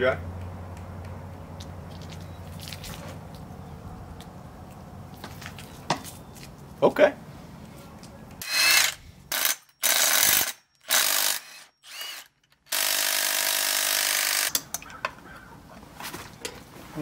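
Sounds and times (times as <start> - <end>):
power tool bursts: 8.4 - 14.6.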